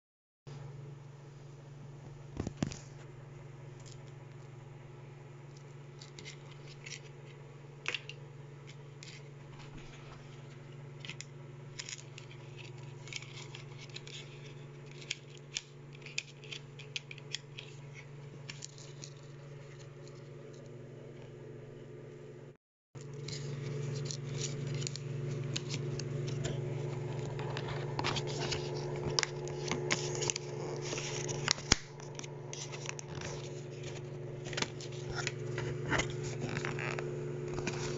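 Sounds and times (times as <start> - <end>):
steady low hum: 0.5 - 37.9
handling cardboard box and paper: 23.1 - 36.5.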